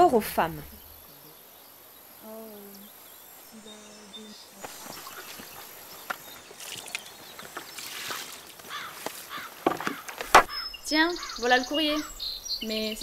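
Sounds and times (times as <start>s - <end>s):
bird chirps: 0.0s - 13.0s
rustling and scuffing of cloth: 4.6s - 10.0s
small knocks: 8.6s - 10.6s.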